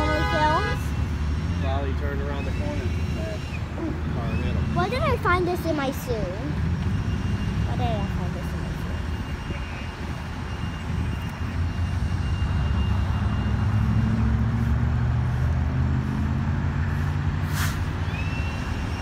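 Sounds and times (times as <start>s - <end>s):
vehicle engine running: 11.2s - 19.0s.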